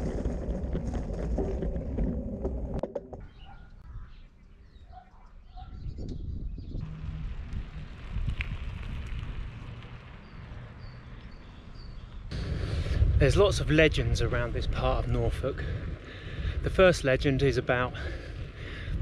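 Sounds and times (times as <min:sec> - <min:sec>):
wind and tyre rumble: 0:00.0 - 0:19.0
birds calling: 0:03.2 - 0:06.8, 0:09.9 - 0:12.3.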